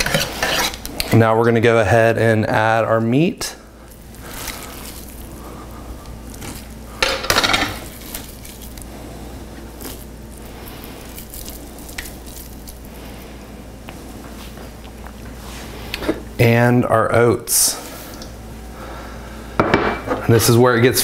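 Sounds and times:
ground meat squishing: 0:03.8 - 0:07.0, 0:07.6 - 0:15.2.

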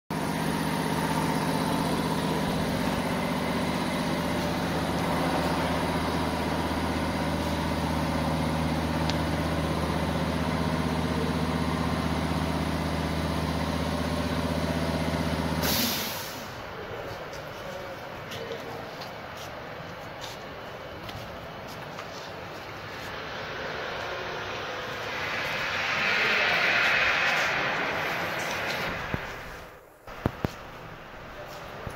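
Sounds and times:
low machine hum: 0:00.1 - 0:15.5
loud rush of noise: 0:00.2 - 0:16.8, 0:22.4 - 0:31.9.

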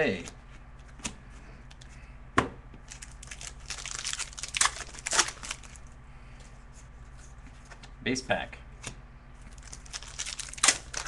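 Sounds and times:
card pack wrapper tearing: 0:02.9 - 0:05.8, 0:09.5 - 0:11.0
wrapper crackling: 0:02.9 - 0:05.9, 0:09.5 - 0:11.0.

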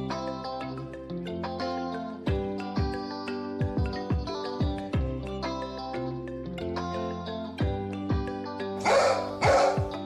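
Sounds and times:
bass: 0:00.0 - 0:10.0
kick drum beats: 0:03.6 - 0:05.2, 0:09.4 - 0:10.0
sustained keyboard notes: 0:08.8 - 0:10.0.

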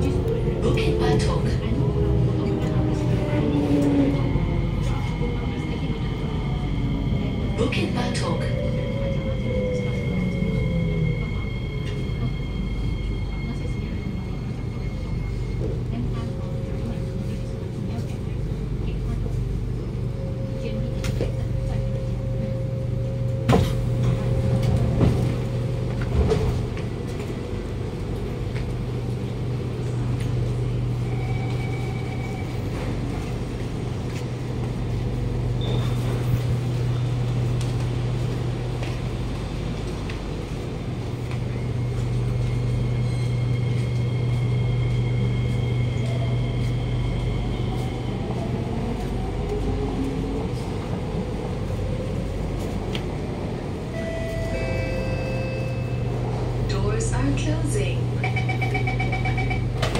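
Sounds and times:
train equipment humming: 0:00.0 - 0:59.9.

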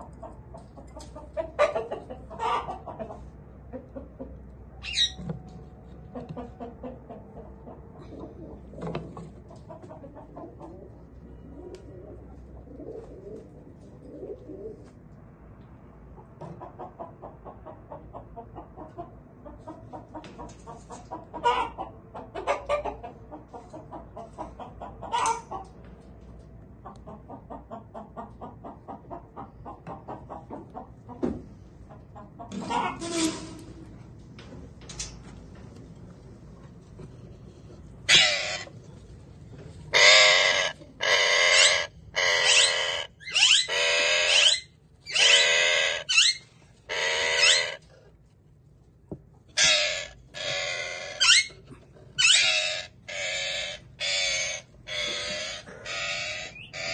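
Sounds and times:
parakeets chattering: 0:38.0 - 0:38.7, 0:39.9 - 0:47.9, 0:49.6 - 0:51.6, 0:52.2 - 0:56.9
parakeet screeches: 0:38.1 - 0:38.7, 0:40.0 - 0:47.8, 0:49.6 - 0:51.6, 0:52.2 - 0:56.9.

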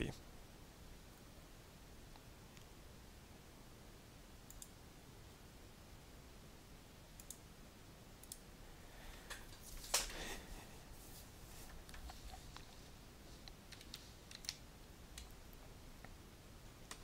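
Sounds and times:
computer mouse clicks: 0:04.5 - 0:04.8, 0:07.2 - 0:07.4, 0:08.2 - 0:08.4, 0:13.4 - 0:15.4.

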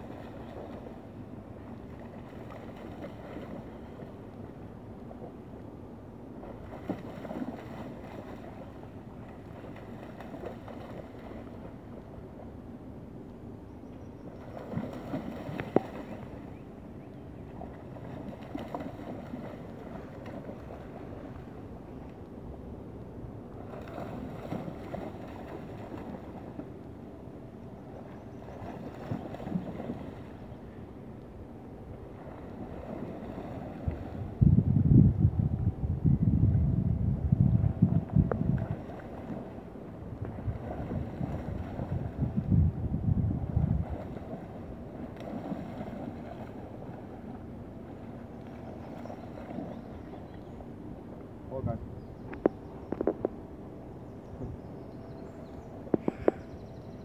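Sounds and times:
dog splashing through water: 0:14.4 - 0:16.2, 0:17.6 - 0:21.3
wind buffeting microphone: 0:32.7 - 0:39.4, 0:40.1 - 0:44.6.

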